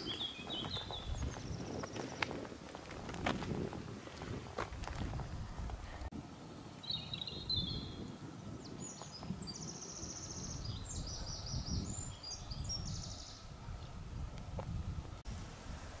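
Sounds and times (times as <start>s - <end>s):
small songbird singing: 0.0s - 2.3s, 6.4s - 13.5s.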